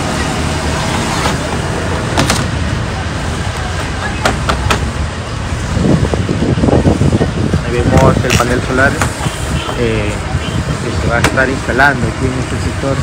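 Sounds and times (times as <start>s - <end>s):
road traffic rumble: 0.0s - 13.0s
voices: 0.0s - 13.0s
sharp knocks: 4.2s - 4.9s
wind noise: 4.4s - 12.2s.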